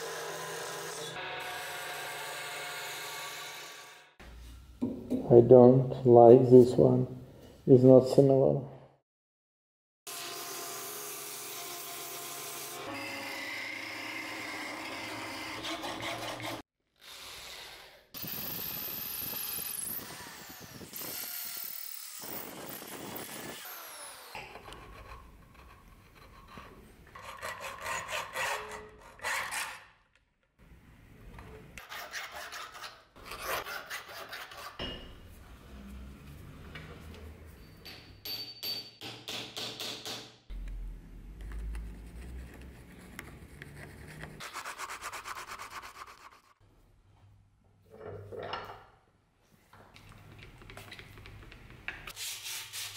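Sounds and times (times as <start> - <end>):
hand tool rasping strokes: 15.4 - 16.6, 24.2 - 29.8
sandpaper rasping on wood: 15.6 - 16.6, 42.1 - 46.6, 52.1 - 52.9.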